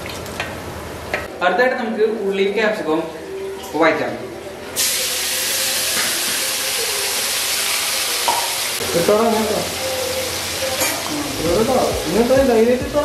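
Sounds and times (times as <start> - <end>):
onions sizzling in hot oil: 4.8 - 12.6.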